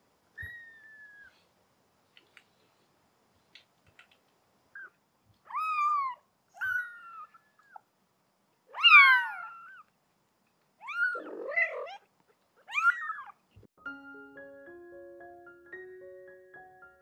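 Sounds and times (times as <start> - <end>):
kittens mewing: 8.7 - 9.9, 10.8 - 13.4.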